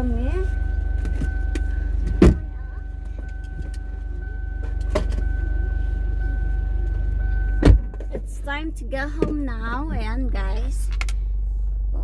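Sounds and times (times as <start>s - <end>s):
car engine idling: 0.0s - 12.0s
loud thump: 2.1s - 2.6s, 7.6s - 8.2s.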